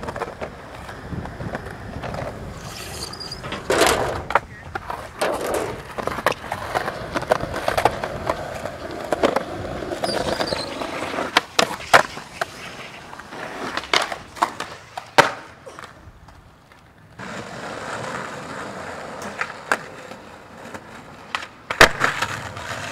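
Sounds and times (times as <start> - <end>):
skateboard clacking: 0.0 - 22.9
skateboard wheels rolling on concrete: 0.0 - 22.9.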